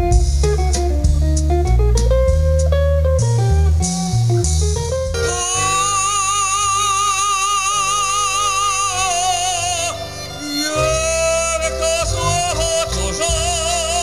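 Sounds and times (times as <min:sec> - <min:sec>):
band accompaniment: 0:00.0 - 0:14.0
singer holding a long note: 0:05.2 - 0:14.0.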